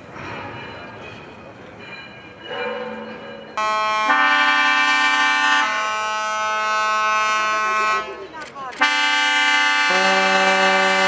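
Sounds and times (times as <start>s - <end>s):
deeper horn tone: 3.6s - 8.1s, 8.8s - 11.0s
loud many-toned horn blast: 3.6s - 8.2s, 8.8s - 11.0s
low steady ship horn: 3.6s - 8.2s, 8.8s - 11.0s.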